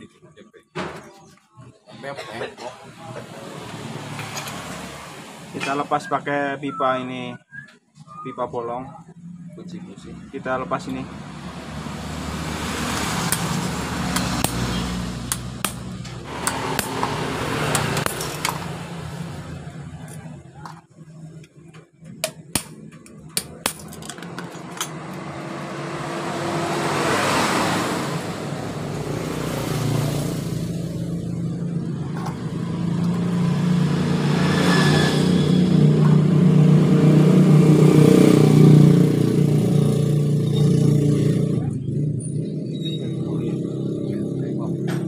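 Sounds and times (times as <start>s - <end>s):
engine running and revving: 3.2s - 5.8s, 10.3s - 20.3s, 23.6s - 45.0s
hammer tapping metal: 15.3s - 18.8s.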